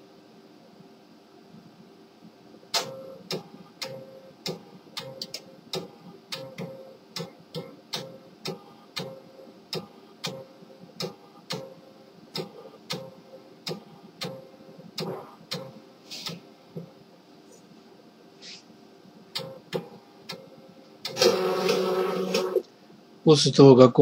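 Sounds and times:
printer clicking: 15.0s - 16.3s, 21.0s - 22.6s.

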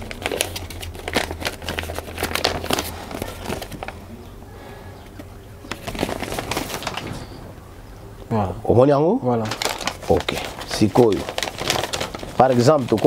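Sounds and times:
paper rustling and crinkling: 0.0s - 4.1s, 5.1s - 7.5s, 9.3s - 13.0s.

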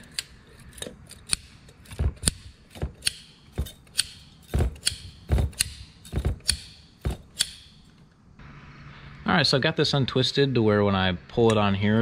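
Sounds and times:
pliers twisting wire clicks: 0.0s - 8.1s.

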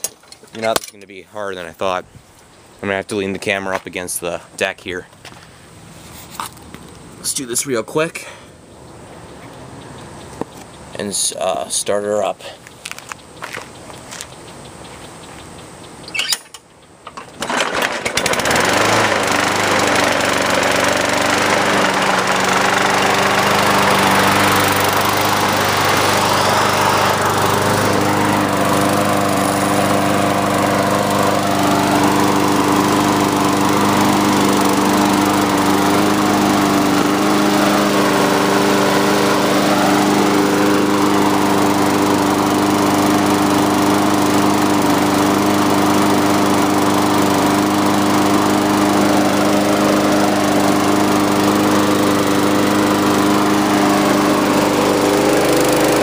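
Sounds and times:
lawn mower engine running: 15.9s - 56.0s.

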